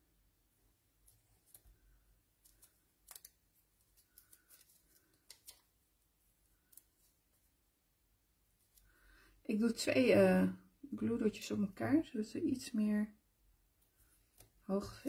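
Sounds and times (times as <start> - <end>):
glue dots ticking and crinkling: 1.0 - 5.7.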